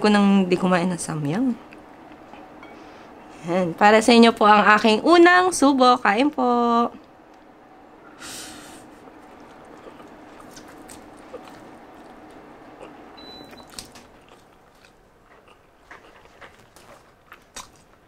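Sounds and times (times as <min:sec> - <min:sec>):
wet chewing clicks: 0:09.2 - 0:18.0.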